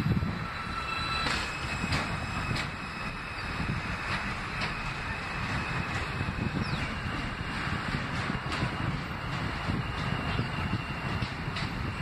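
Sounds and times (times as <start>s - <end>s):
subway train rumble and hiss: 0.0s - 12.0s
wheels clicking over rail joints: 4.0s - 12.0s.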